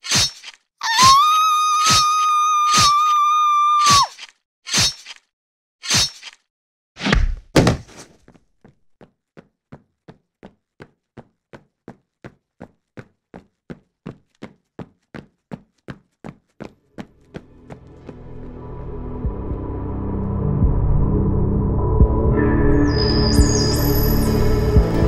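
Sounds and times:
heavy thuds: 0:07.4 - 0:08.2
running footsteps: 0:07.6 - 0:18.2.

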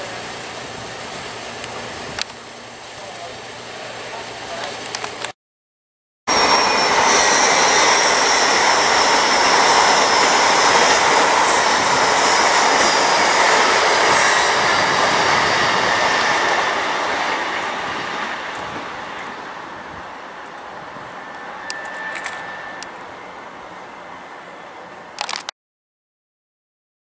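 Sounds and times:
train wheels rushing on rail: 0:06.3 - 0:24.6
high whine falling in pitch: 0:06.3 - 0:24.8.

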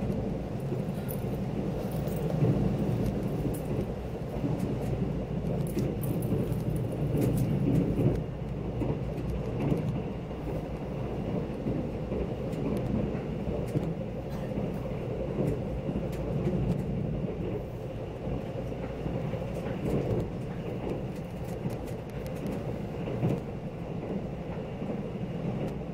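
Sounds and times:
train low rumble: 0:00.0 - 0:25.9
faint clicks: 0:11.5 - 0:14.8, 0:19.5 - 0:24.2.

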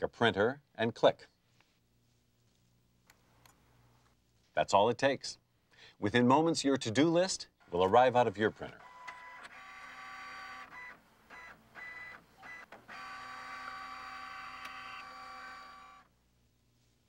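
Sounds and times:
printer motors whirring: 0:08.5 - 0:16.1.

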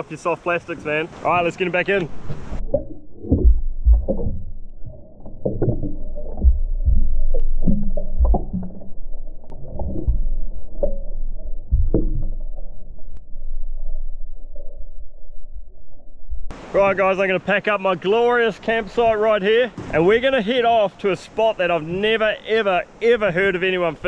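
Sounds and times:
muffled underwater sloshing: 0:01.9 - 0:16.0.

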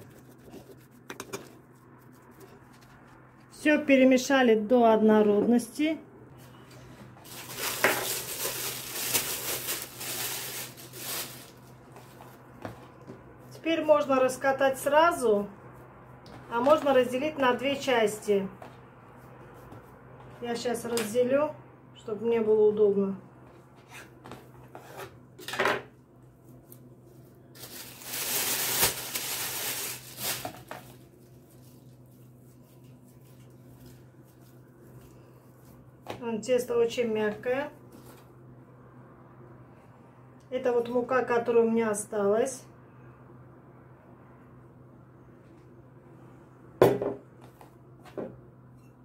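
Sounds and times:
faint steady hum: 0:00.0 - 0:49.0
plastic bag crinkling: 0:07.3 - 0:11.8, 0:27.5 - 0:32.1.

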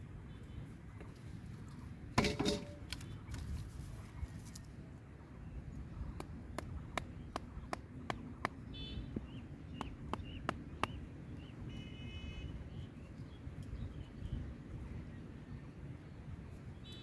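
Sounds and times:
wooden mallet striking a stake: 0:02.2 - 0:03.0.

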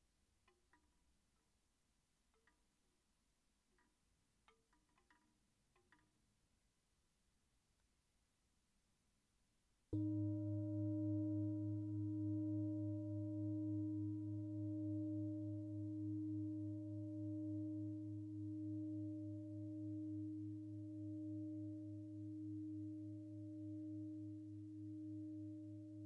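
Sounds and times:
metal singing bowl ringing: 0:10.0 - 0:26.0.

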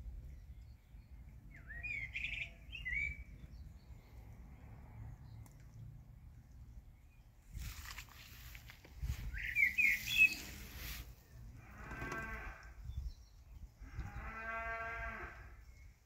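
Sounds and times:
rustling: 0:07.5 - 0:11.2
high rising chirps: 0:09.2 - 0:11.0.

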